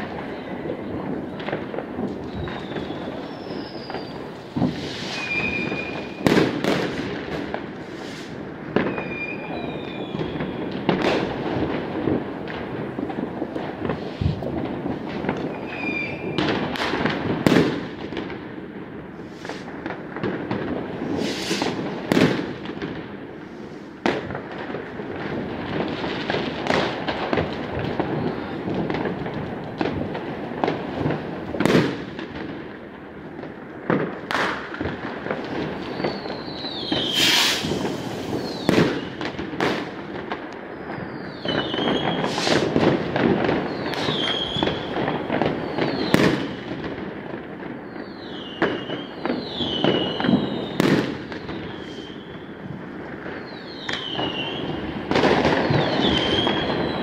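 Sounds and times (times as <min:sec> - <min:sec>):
firecracker crackle: 0:00.0 - 0:57.0
fireworks bangs and pops: 0:00.0 - 0:57.0
whistling fireworks falling: 0:00.0 - 0:57.0
firework hiss: 0:02.1 - 0:09.1, 0:12.9 - 0:17.9, 0:19.1 - 0:20.1, 0:20.9 - 0:22.6, 0:23.3 - 0:24.2, 0:36.0 - 0:40.0, 0:41.4 - 0:46.6, 0:49.4 - 0:52.4.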